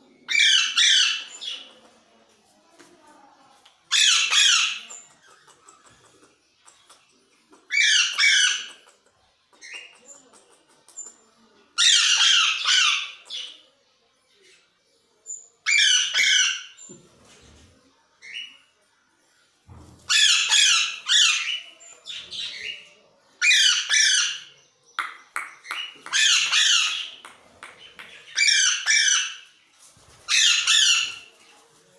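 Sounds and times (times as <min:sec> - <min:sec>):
parrots squawking: 0:00.3 - 0:01.4, 0:03.9 - 0:06.0, 0:07.7 - 0:08.8, 0:11.8 - 0:13.2, 0:15.7 - 0:16.8, 0:20.1 - 0:21.7, 0:26.0 - 0:27.7, 0:28.3 - 0:29.5, 0:30.3 - 0:31.3.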